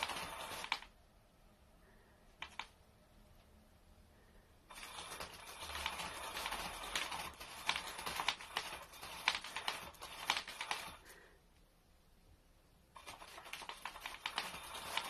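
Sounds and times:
cat scratching fabric: 0:00.0 - 0:01.0, 0:04.7 - 0:11.2, 0:12.9 - 0:15.0
quick clicks: 0:02.3 - 0:02.8.

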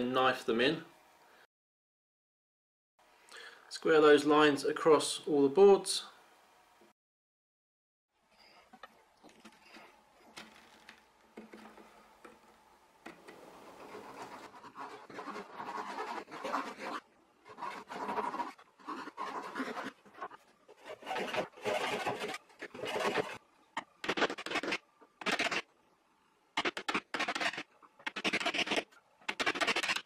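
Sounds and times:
chisel scraping wood: 0:13.2 - 0:23.4, 0:26.6 - 0:30.0
edge tool scratching wood: 0:13.6 - 0:23.4, 0:24.0 - 0:25.6, 0:26.6 - 0:30.0.

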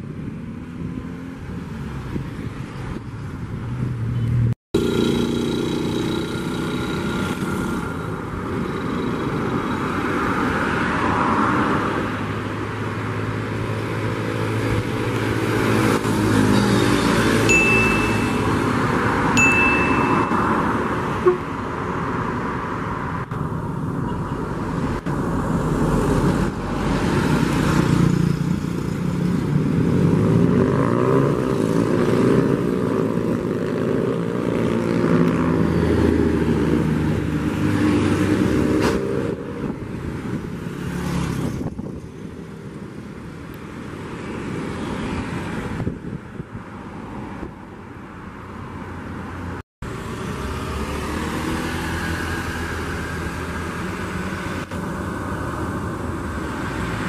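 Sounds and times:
road traffic: 0:00.0 - 0:57.0
steady high tone: 0:17.5 - 0:21.5
bus diesel engine passing: 0:48.0 - 0:57.0.

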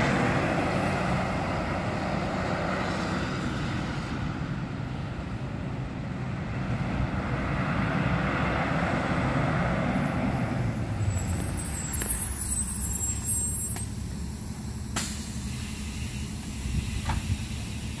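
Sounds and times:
bus diesel engine rumble: 0:00.0 - 0:18.0
brake squeal: 0:10.7 - 0:18.0
air brake hiss: 0:12.6 - 0:18.0.

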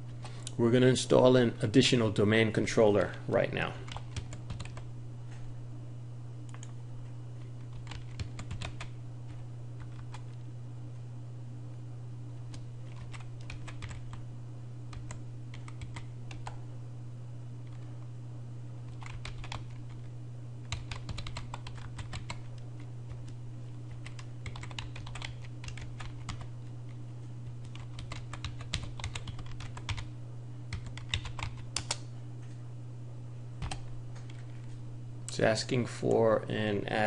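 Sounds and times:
steady low hum: 0:00.0 - 0:37.0
keyboard typing: 0:03.8 - 0:04.9, 0:07.4 - 0:10.4, 0:12.5 - 0:14.2, 0:14.9 - 0:16.6, 0:18.9 - 0:27.0, 0:27.6 - 0:30.1, 0:30.7 - 0:32.0, 0:33.6 - 0:34.6.

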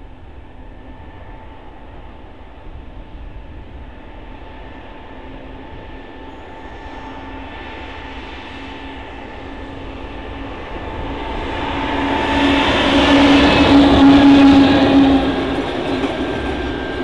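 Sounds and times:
locomotive high whine: 0:00.0 - 0:17.0
diesel locomotive rumble: 0:09.0 - 0:17.0.

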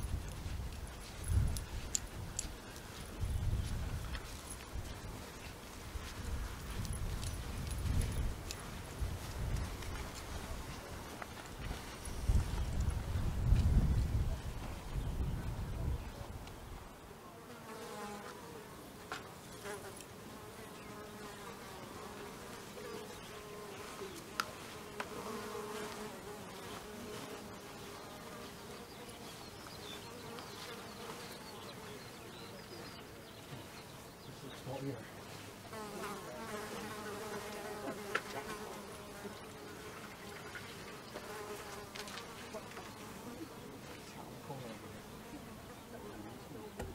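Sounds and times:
insect buzzing: 0:19.5 - 0:32.0.

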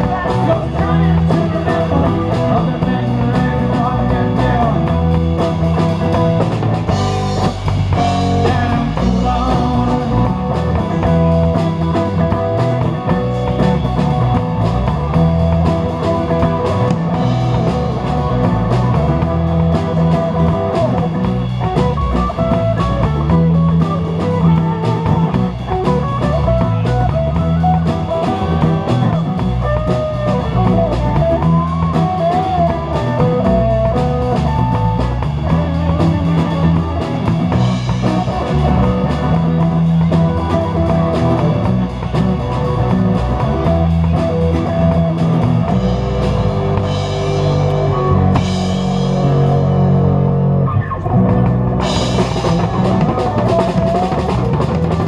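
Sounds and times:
acoustic-electric guitar: 0:00.0 - 0:55.0
bass guitar: 0:00.0 - 0:55.0
drum kit: 0:00.0 - 0:55.0
electric guitar: 0:00.0 - 0:55.0.

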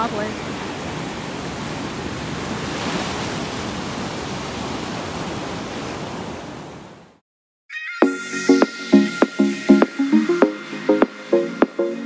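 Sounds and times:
ocean surf breaking: 0:00.0 - 0:07.1
electronic music: 0:07.7 - 0:12.0.

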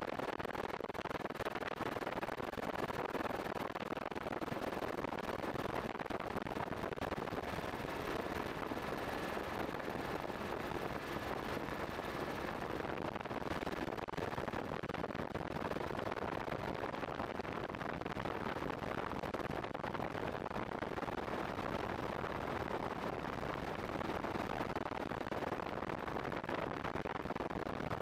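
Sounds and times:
helicopter roaring in flight: 0:07.0 - 0:12.9.

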